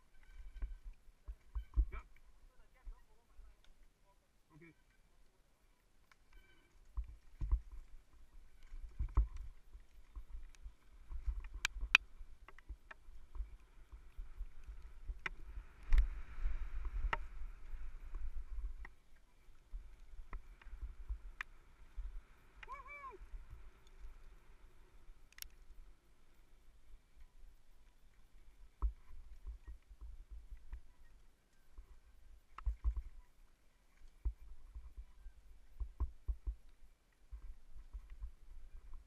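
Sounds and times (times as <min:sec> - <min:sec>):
rumble of wind and trail vibration: 0:06.9 - 0:27.6.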